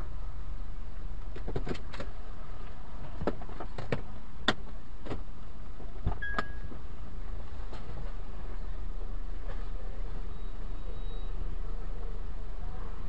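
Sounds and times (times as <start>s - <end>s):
short high beep: 6.2s - 6.7s, 10.3s - 11.4s.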